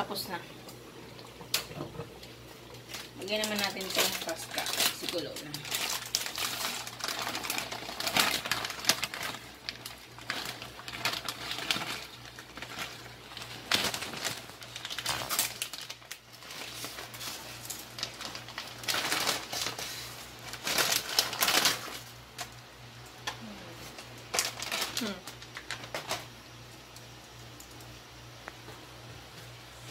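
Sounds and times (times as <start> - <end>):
plastic packet crinkling and tearing: 2.7 - 22.6, 23.9 - 26.3.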